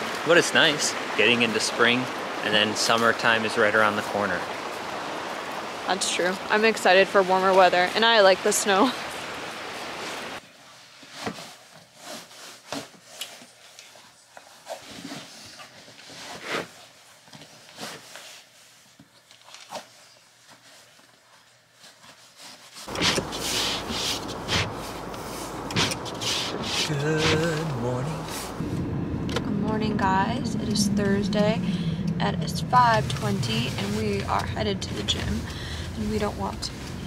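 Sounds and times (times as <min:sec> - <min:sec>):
bootlaces rubbing through eyelets: 0:22.0 - 0:27.6
car cabin rumble: 0:22.9 - 0:37.0.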